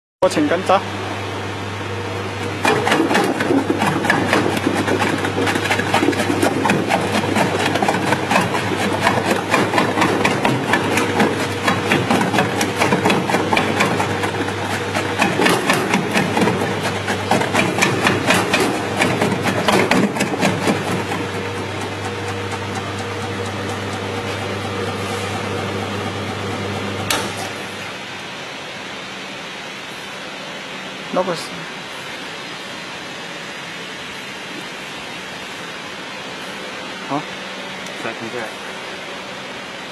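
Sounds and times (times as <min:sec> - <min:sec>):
dicing machine humming: 0:00.2 - 0:39.9
blades chopping potatoes: 0:02.4 - 0:27.8.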